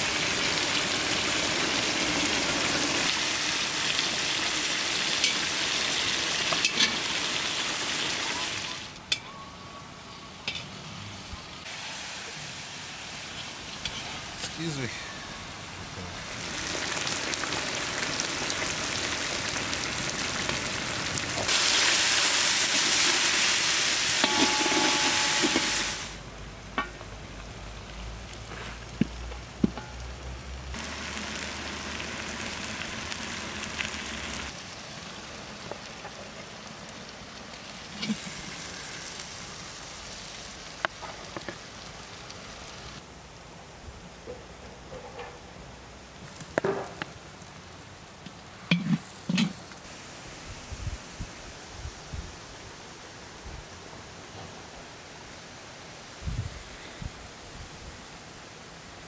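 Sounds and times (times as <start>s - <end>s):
food sizzling in oil: 0.0s - 9.0s, 10.7s - 26.2s, 27.0s - 43.0s.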